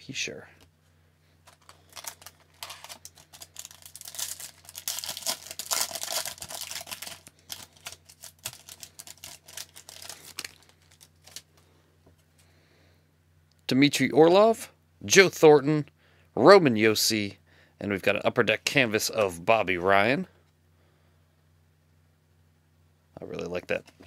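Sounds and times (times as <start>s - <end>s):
faint low hum: 0.0s - 24.0s
foil wrapper crinkling: 1.4s - 11.5s.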